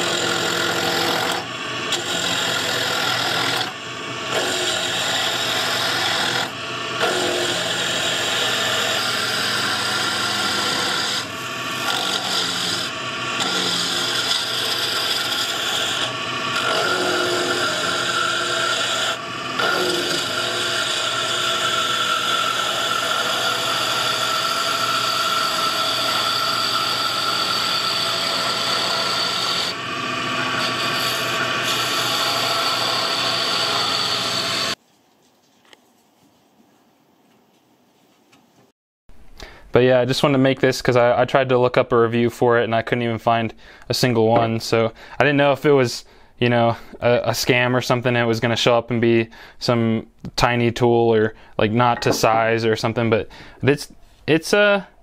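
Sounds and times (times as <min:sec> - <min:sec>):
lathe humming: 0:00.0 - 0:34.8
turning tool scraping wood: 0:00.0 - 0:34.8.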